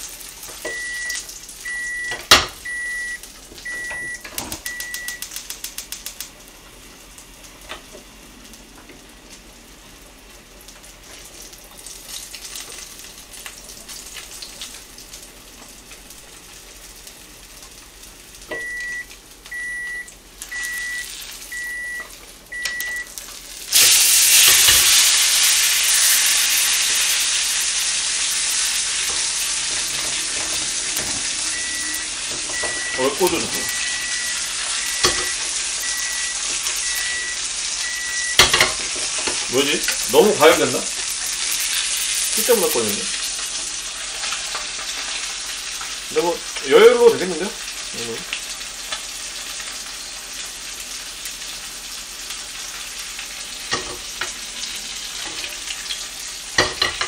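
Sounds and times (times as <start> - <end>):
fish frying in oil: 0.0 - 57.0
loud sizzle: 0.0 - 57.0
electronic beeps: 0.7 - 5.2, 22.6 - 23.1, 31.2 - 38.4.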